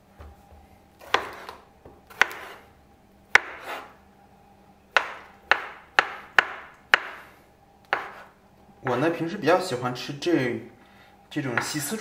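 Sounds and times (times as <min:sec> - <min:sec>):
knife chopping on wooden board: 0:01.0 - 0:02.6, 0:03.3 - 0:03.9, 0:04.9 - 0:07.2, 0:07.9 - 0:08.3.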